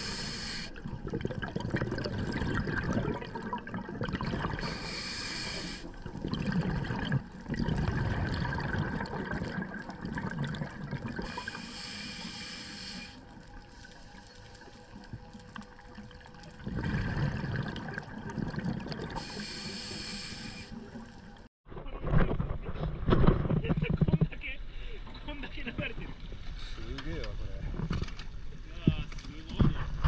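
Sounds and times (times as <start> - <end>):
regulator inhale hiss: 0.0 - 0.8, 4.6 - 6.0, 11.2 - 14.5, 19.2 - 21.1
exhaled bubbles gurgling: 0.0 - 21.5.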